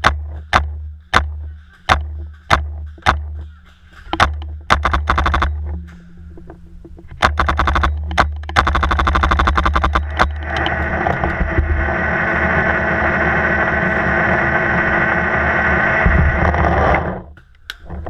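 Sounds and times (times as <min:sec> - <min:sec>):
paintball marker firing rapidly: 0:04.2 - 0:05.6, 0:07.2 - 0:10.4.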